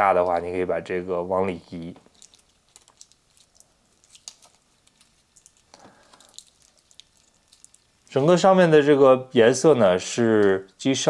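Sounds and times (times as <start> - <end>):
plastic film rustling: 1.6 - 8.6.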